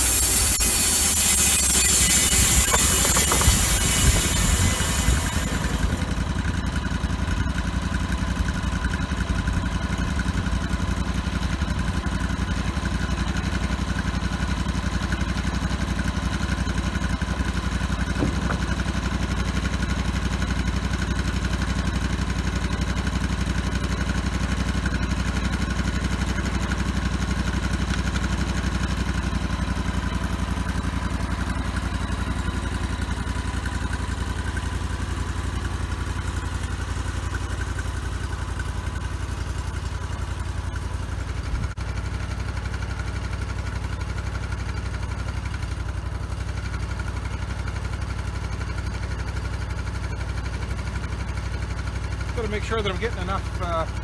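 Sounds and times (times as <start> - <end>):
high hiss: 0.0 - 6.0
sawmill gasoline engine running: 0.0 - 54.0.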